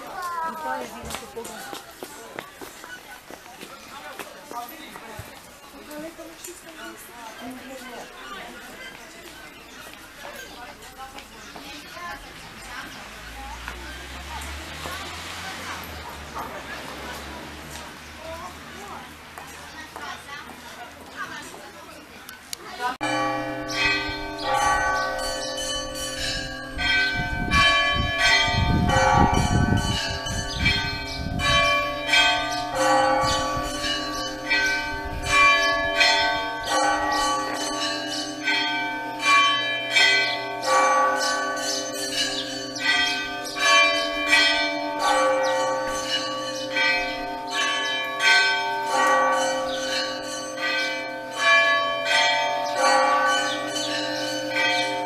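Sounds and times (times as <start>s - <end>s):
church bells ringing: 22.8s - 55.0s.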